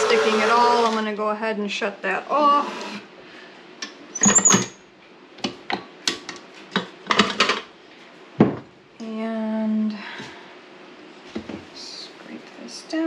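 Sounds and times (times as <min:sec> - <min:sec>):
high scrape: 0:02.5 - 0:03.1.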